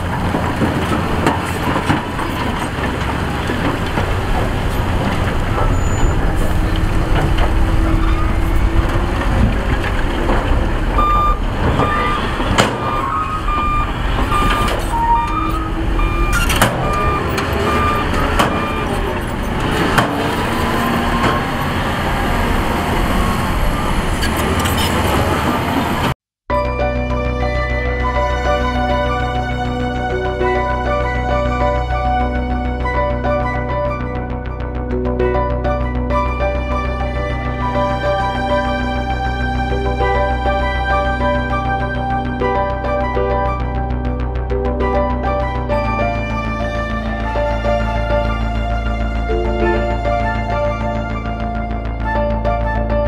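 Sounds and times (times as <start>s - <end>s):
heavy diesel machinery running: 0.0s - 53.0s
reversing alarm beeping: 5.6s - 9.1s, 10.9s - 19.9s, 23.3s - 24.2s.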